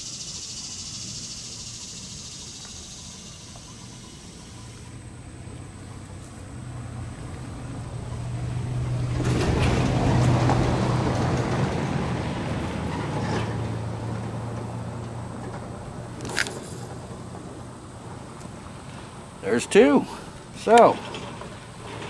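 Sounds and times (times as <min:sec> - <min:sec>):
vehicle passing by: 0:04.4 - 0:22.0.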